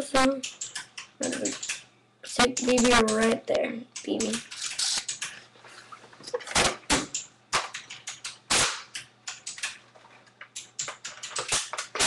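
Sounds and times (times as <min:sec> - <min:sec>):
airsoft gun plastic clicks: 0:10.4 - 0:12.0.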